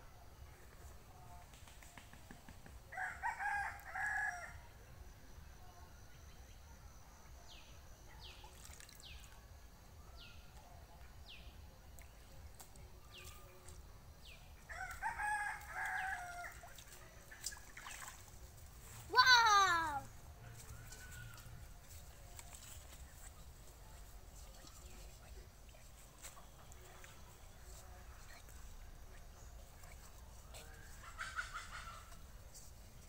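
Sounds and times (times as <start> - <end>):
rooster crowing: 2.9 - 4.6.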